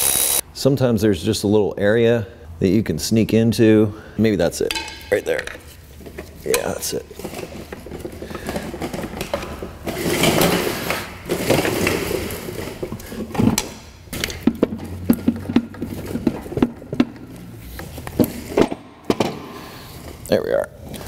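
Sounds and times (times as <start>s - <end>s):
sharp metal knocks: 4.7s - 5.6s.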